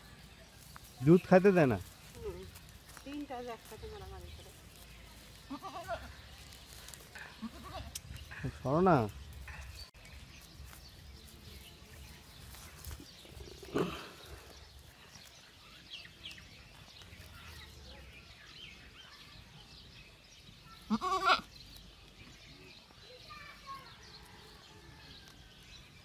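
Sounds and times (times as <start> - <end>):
goats bleating: 5.5 - 6.1, 20.9 - 21.5.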